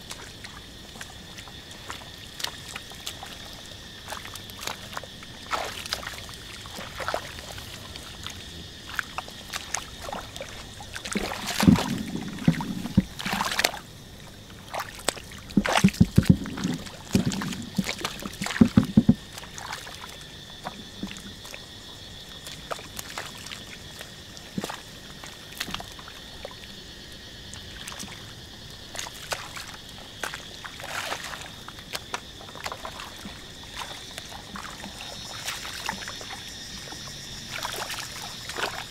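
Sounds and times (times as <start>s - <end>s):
hands squelching in mud: 0.0s - 13.9s, 14.6s - 21.7s, 28.8s - 38.9s
water sloshing and splashing: 0.0s - 38.9s.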